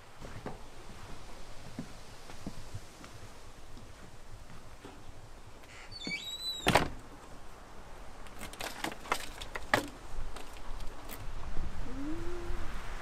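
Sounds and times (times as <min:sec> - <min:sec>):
door squeaking: 0:05.7 - 0:07.0
door shutting with knock: 0:06.0 - 0:07.0.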